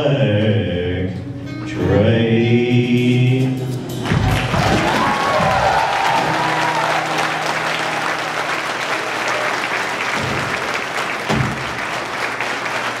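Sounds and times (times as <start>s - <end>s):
audience applauding: 4.1s - 13.0s.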